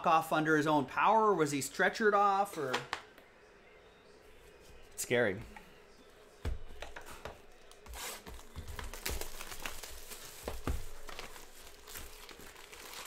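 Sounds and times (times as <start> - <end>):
card pack wrappers crinkling: 7.7 - 13.0.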